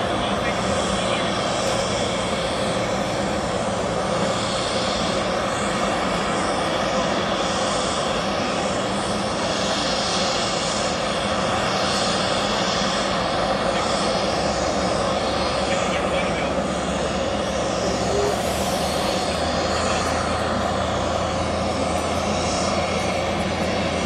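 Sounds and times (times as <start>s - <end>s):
aircraft engine drone: 0.0s - 24.0s.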